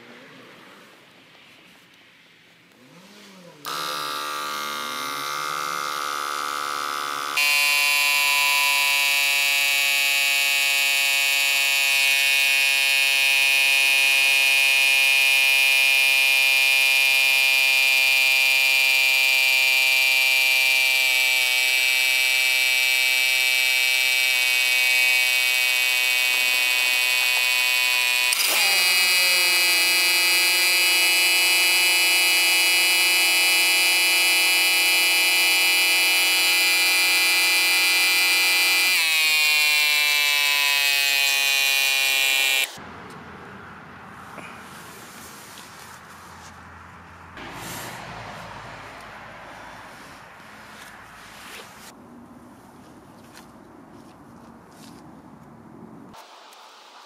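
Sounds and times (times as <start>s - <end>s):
air compressor buzzing: 2.9s - 42.8s.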